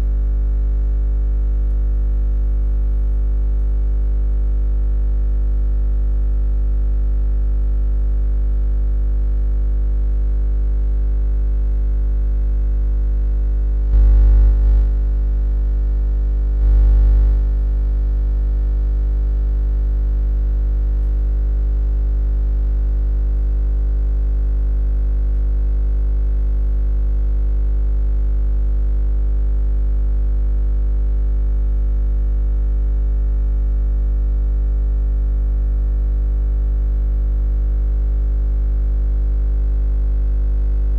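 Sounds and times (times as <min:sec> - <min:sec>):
low buzzing hum: 0:00.0 - 0:01.8, 0:13.6 - 0:15.7, 0:16.4 - 0:17.6, 0:31.8 - 0:34.4, 0:35.0 - 0:38.9, 0:40.3 - 0:40.9.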